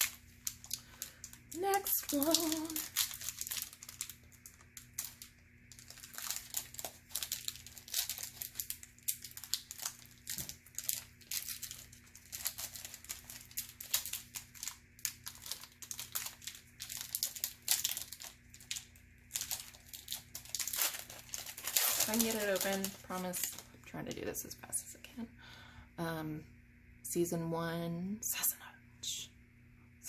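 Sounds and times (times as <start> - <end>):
foil wrapper crinkling and tearing: 0.0 - 23.8.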